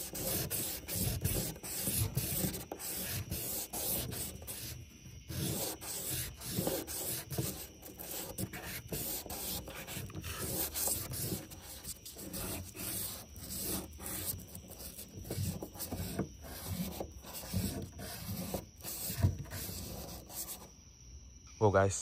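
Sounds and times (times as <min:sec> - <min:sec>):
metal part sanded on sandpaper: 0:00.0 - 0:20.7.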